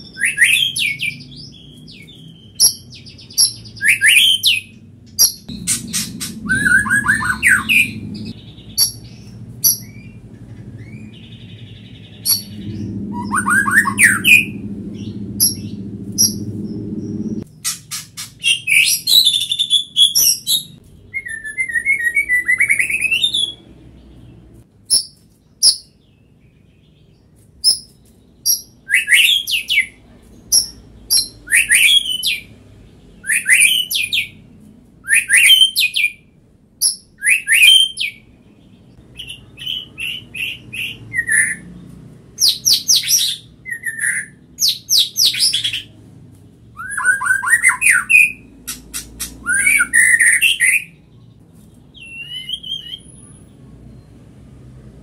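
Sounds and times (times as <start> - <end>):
bird singing whistles: 0.0 - 10.2, 10.8 - 17.4, 18.4 - 23.6, 27.6 - 32.5, 33.2 - 34.4, 35.0 - 36.2, 36.8 - 38.2, 42.4 - 45.8, 46.8 - 51.0, 51.9 - 53.4.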